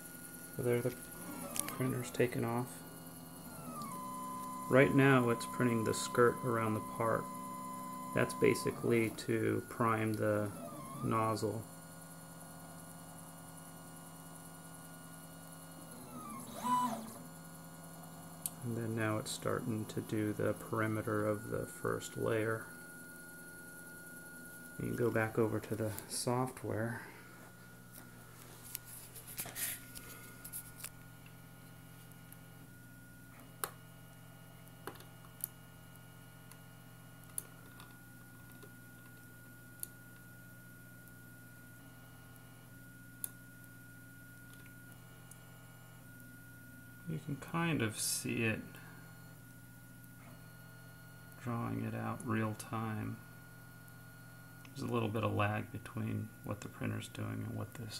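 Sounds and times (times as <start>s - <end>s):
stepper motors humming: 0.1s - 11.8s, 15.6s - 22.8s.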